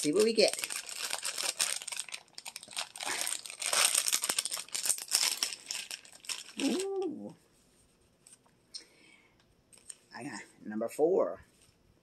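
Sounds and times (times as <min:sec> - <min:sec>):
plastic wrapper crinkling: 0:00.0 - 0:07.1.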